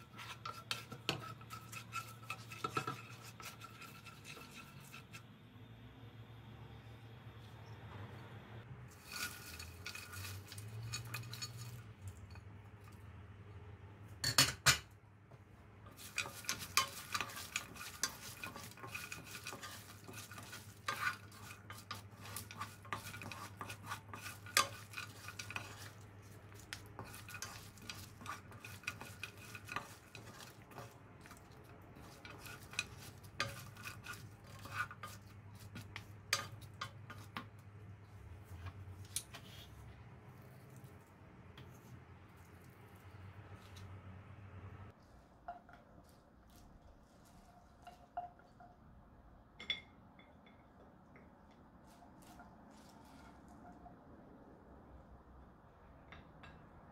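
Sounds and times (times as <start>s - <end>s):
spatula scraping nuts in pan: 0.0s - 5.3s, 8.9s - 12.4s, 15.8s - 44.0s.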